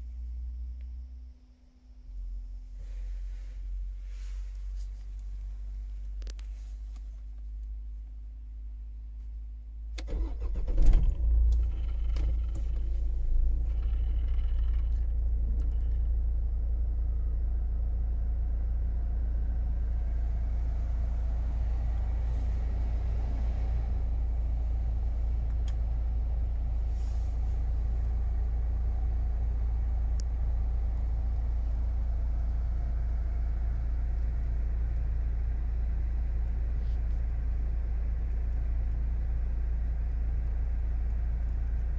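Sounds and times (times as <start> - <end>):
diesel engine cold start and idle: 9.9 - 41.9.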